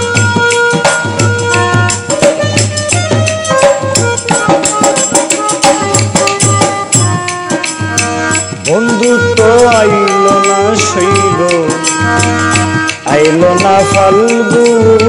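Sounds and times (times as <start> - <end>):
hand percussion: 0.0 - 15.0
harmonium melody: 0.0 - 15.0
person singing: 8.3 - 15.0.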